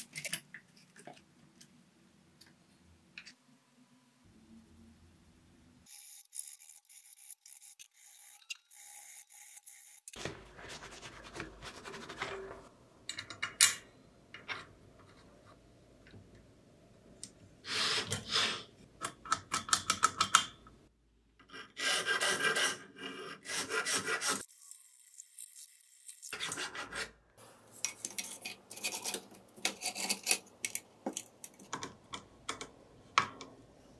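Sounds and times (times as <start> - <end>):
hand file rasping metal: 21.8 - 24.4.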